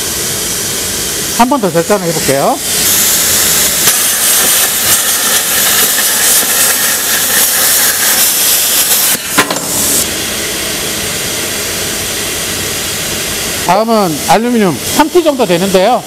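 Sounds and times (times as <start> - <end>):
air hiss: 0.0 - 16.0
plasma arc hissing: 0.0 - 16.0
torch click: 2.8 - 10.1.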